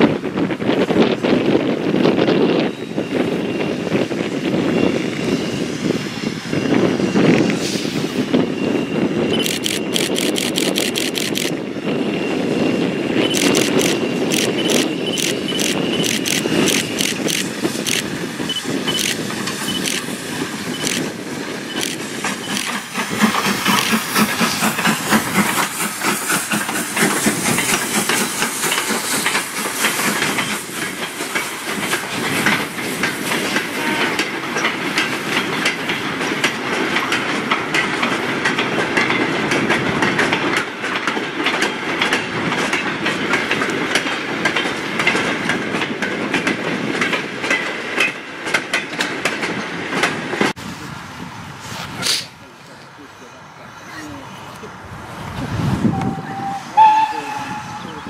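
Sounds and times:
steam locomotive passing: 0.0s - 58.0s
steam hissing: 3.1s - 36.0s.

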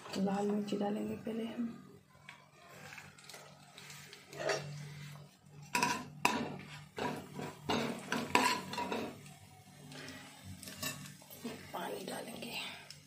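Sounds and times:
metal spoon scraping a pan: 2.7s - 12.1s
spices sizzling in oil: 2.7s - 13.0s.

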